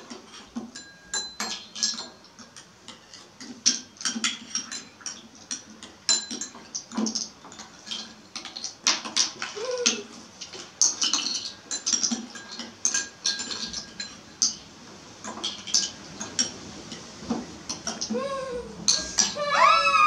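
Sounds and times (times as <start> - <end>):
spoons clinking on ceramic bowls: 0.1 - 8.8, 9.4 - 17.1, 18.9 - 19.4.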